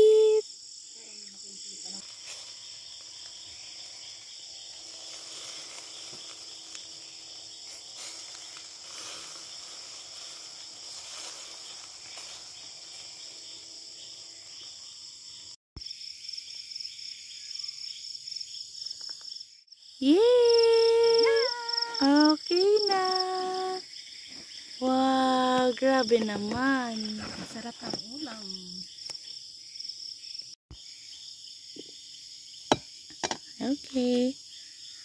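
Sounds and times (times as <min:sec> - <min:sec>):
crickets and insects chirping: 0:00.0 - 0:35.0
faint charcoal grill crackle: 0:01.8 - 0:13.6.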